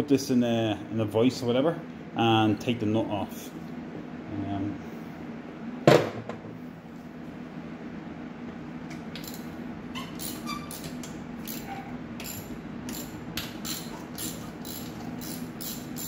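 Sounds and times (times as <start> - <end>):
steady low hum: 0.0 - 16.0
socket ratchet clicking: 9.2 - 9.5, 10.2 - 16.0.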